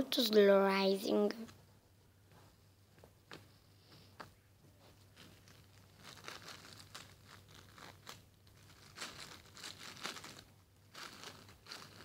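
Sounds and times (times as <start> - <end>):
plastic bag crinkling: 5.1 - 12.0.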